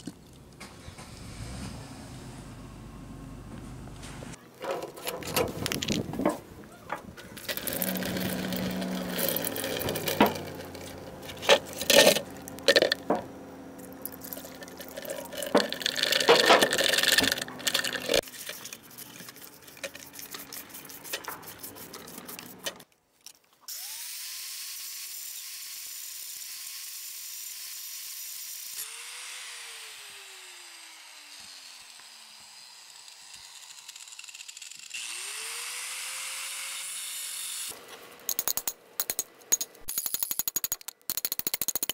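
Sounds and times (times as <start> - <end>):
metal parts clattering: 4.6 - 6.4, 7.3 - 20.4, 38.3 - 41.9
angle grinder whining: 6.9 - 18.3, 28.7 - 37.8.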